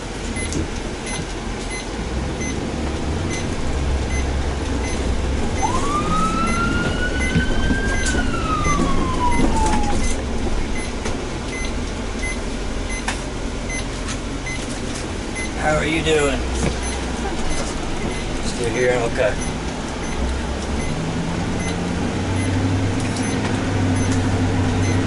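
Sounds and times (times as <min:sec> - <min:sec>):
vehicle interior rumble: 0:00.0 - 0:25.0
ambulance siren wailing: 0:04.2 - 0:10.9.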